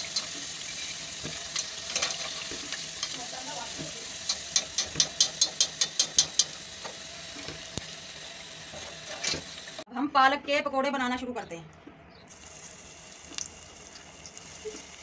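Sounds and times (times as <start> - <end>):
food sizzling in hot oil: 0.0 - 9.9, 12.3 - 15.0
skimmer clicking against pan: 4.2 - 7.0.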